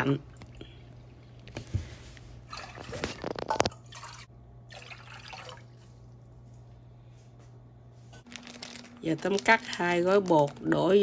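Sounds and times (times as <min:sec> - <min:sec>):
water pouring into saucepan: 0:02.5 - 0:06.0.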